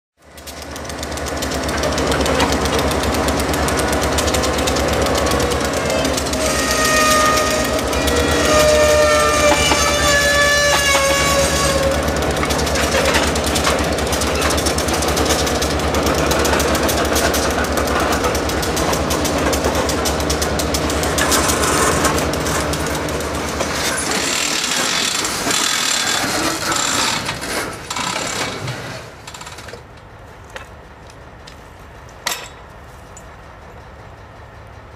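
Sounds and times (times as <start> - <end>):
diesel locomotive engine running: 0.2 - 34.9
metallic clanks of track switch: 32.2 - 33.3.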